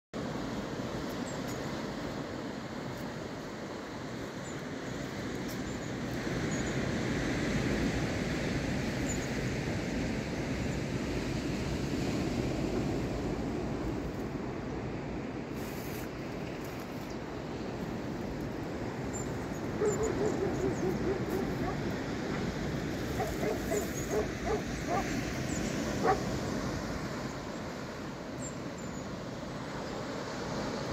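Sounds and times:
wind: 0.1s - 30.9s
ocean surf: 0.2s - 30.9s
wind on microphone: 19.2s - 26.4s
animal call: 19.8s - 21.8s, 23.1s - 25.2s.

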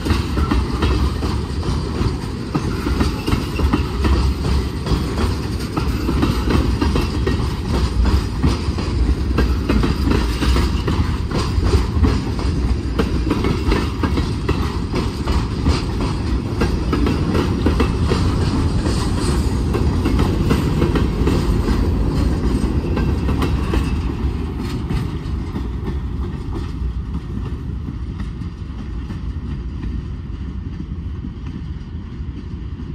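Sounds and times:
freight train rumbling past: 0.0s - 32.9s
wheels clicking over rail joints: 0.0s - 32.9s.

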